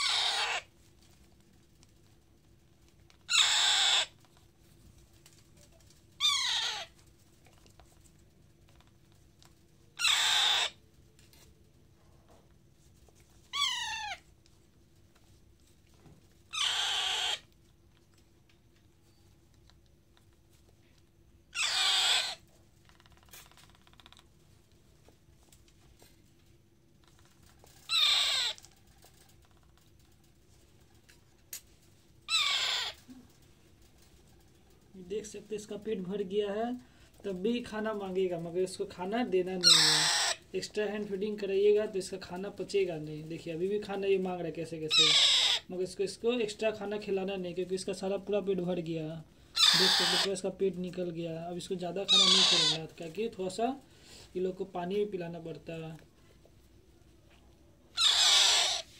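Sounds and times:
parakeet chick begging calls: 0:00.0 - 0:00.7, 0:03.3 - 0:04.2, 0:06.2 - 0:06.9, 0:10.0 - 0:10.8, 0:13.5 - 0:14.2, 0:16.5 - 0:17.5, 0:21.5 - 0:22.4, 0:27.9 - 0:28.6, 0:32.3 - 0:33.0, 0:39.6 - 0:40.4, 0:44.9 - 0:45.7, 0:49.5 - 0:50.3, 0:52.0 - 0:52.9, 0:57.9 - 0:58.9.

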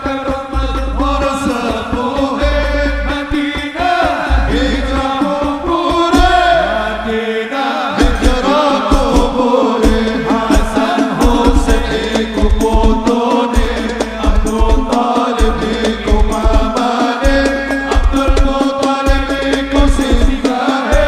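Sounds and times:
frame drums beating: 0:00.0 - 0:06.9, 0:07.9 - 0:21.0
men singing together: 0:00.0 - 0:21.0.

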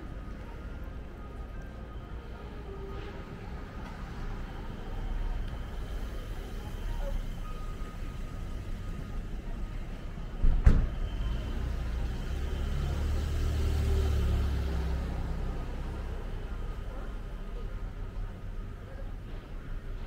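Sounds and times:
motor vehicles rumbling: 0:00.0 - 0:20.0
vehicle passing: 0:11.5 - 0:16.0.

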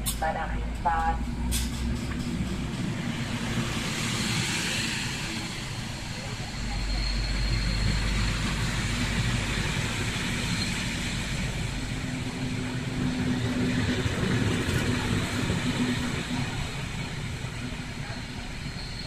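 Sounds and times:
train wheels rumbling on rails: 0:00.0 - 0:19.0.

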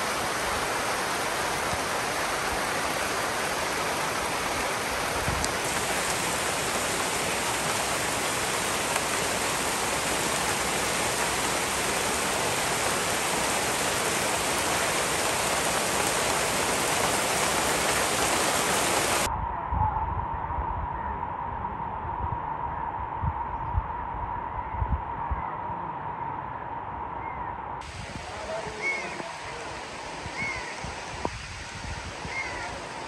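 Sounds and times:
heavy rain: 0:00.0 - 0:19.3, 0:27.8 - 0:33.0.

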